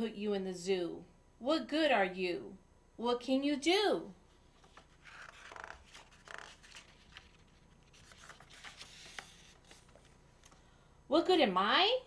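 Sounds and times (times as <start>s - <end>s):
paper page rustling: 4.4s - 10.6s.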